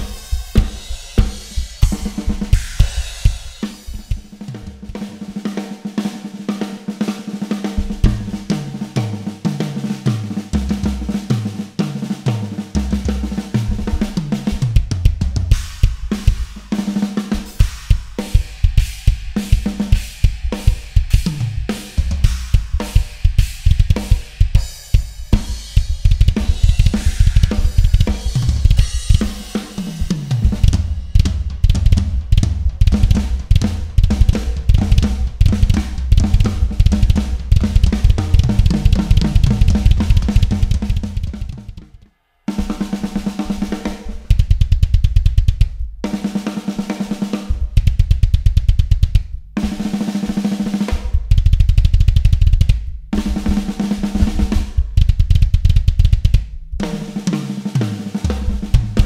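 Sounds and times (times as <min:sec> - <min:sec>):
rapid bass drum strokes: 0:00.0 - 0:59.0
snare and cymbal hits: 0:00.0 - 0:59.0
tom fills: 0:12.7 - 0:46.6.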